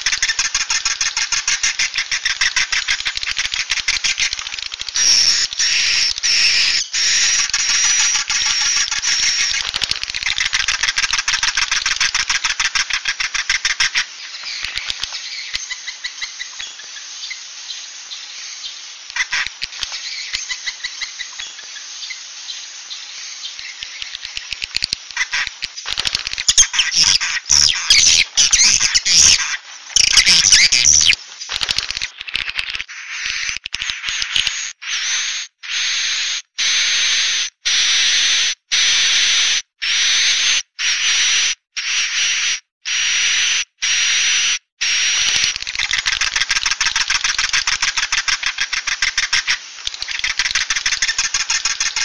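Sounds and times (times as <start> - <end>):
buzzing calls with high whistle: 0.0 - 52.0
swiftlets twittering chirps: 18.4 - 39.2, 44.8 - 52.0.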